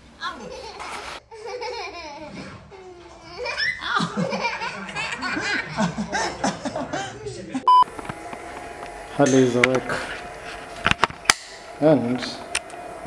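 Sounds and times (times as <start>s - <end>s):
toddler laughing: 0.2s - 7.4s
adult laughing: 3.3s - 7.6s.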